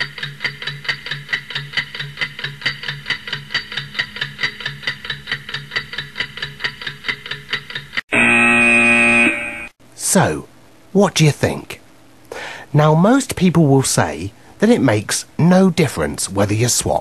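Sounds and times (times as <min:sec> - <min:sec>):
clock ticking: 0:00.0 - 0:08.0.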